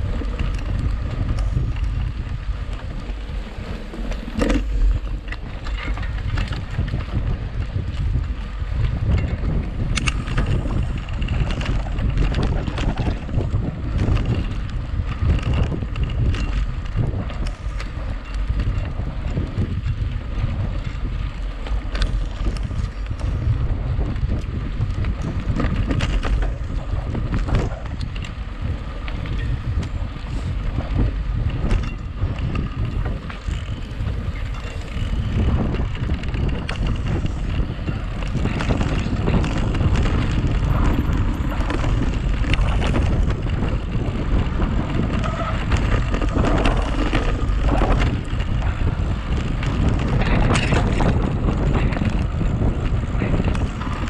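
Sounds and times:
bike rattling and knocking: 0.0s - 54.0s
wind rumble on microphone: 0.0s - 54.0s.

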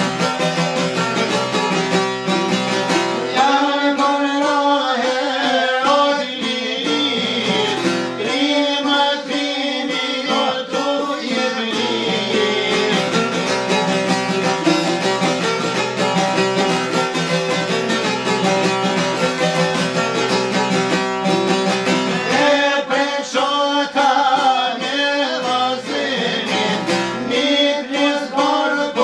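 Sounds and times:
plucked long-necked lutes: 0.0s - 29.0s
man singing: 3.3s - 14.1s, 22.1s - 29.0s.

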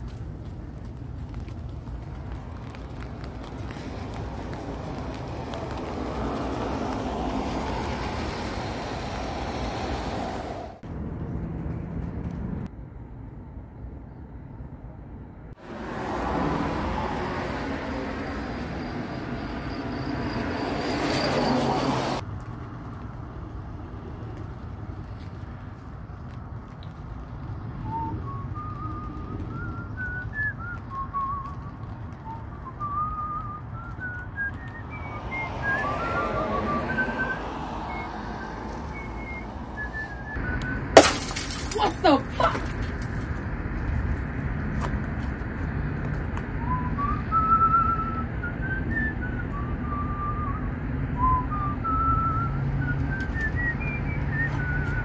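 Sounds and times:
man whistling a tune: 27.9s - 40.8s, 46.6s - 55.0s.

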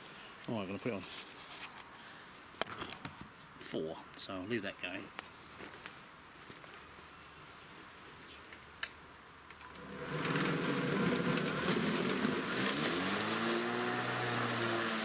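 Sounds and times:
electric lawn mower whirring: 9.6s - 15.0s.

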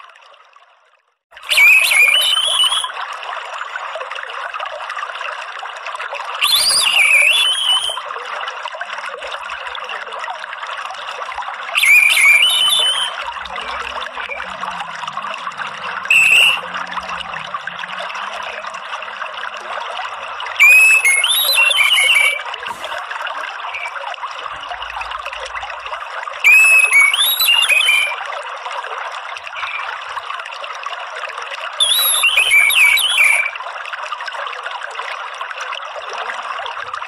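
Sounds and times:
trickle of running water: 0.0s - 37.0s
thrush whistling calls: 1.4s - 2.9s, 6.4s - 8.0s, 11.8s - 18.6s, 20.5s - 23.0s, 23.7s - 24.0s, 26.4s - 28.2s, 29.6s - 30.0s, 31.8s - 33.6s.

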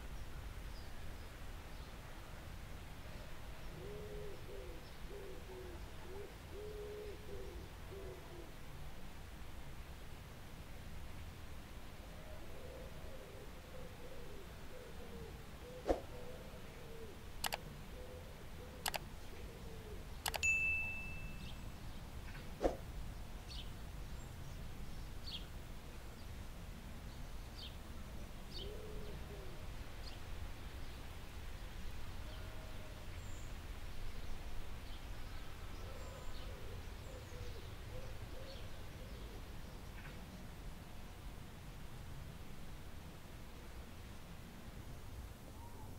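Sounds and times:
glass ringing tone: 20.4s - 21.6s.

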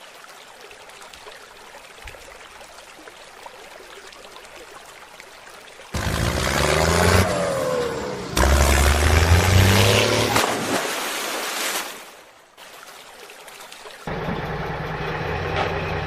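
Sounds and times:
water splashing: 0.0s - 14.9s
vehicle engine revving: 6.0s - 10.4s.

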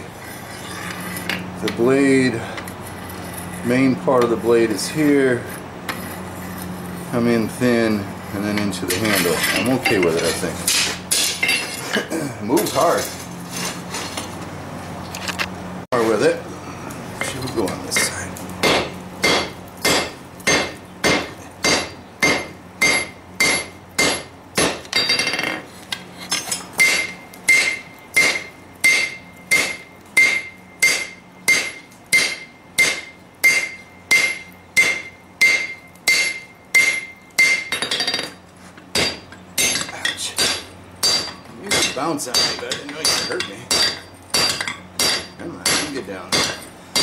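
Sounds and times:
hammer striking steel on anvil: 17.2s - 25.6s, 26.4s - 47.0s
anvil ringing: 18.0s - 25.4s, 26.8s - 47.0s.

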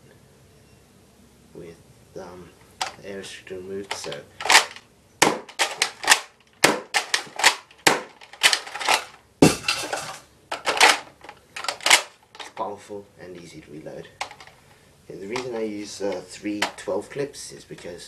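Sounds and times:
plastic toy blaster clacking: 3.9s - 9.1s.

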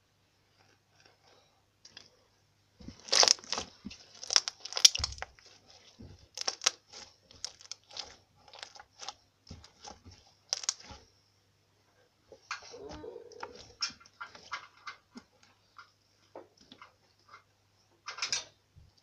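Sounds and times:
slime squelching and crackling: 2.8s - 11.1s, 12.6s - 14.9s
slime popping and clicking: 3.0s - 3.6s, 4.2s - 5.3s, 6.4s - 6.8s, 10.5s - 10.8s.

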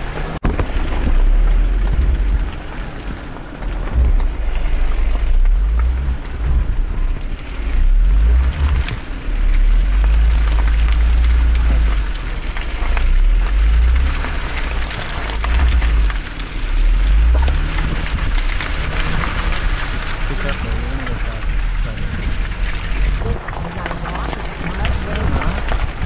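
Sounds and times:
vehicle driving off-road rumble: 0.0s - 26.0s.

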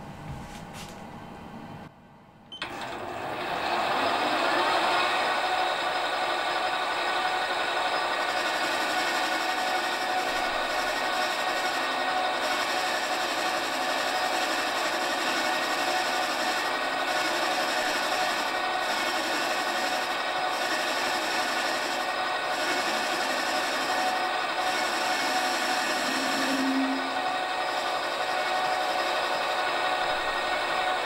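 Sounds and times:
lathe motor whine: 2.6s - 31.0s
metal cutting scraping: 4.8s - 31.0s.

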